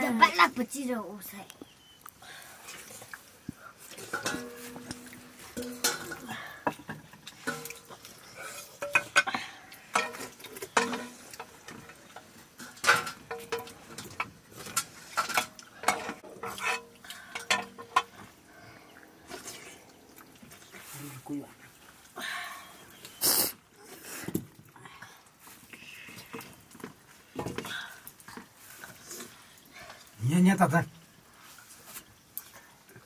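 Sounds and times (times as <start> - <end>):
metal plates ringing: 4.1 - 6.3.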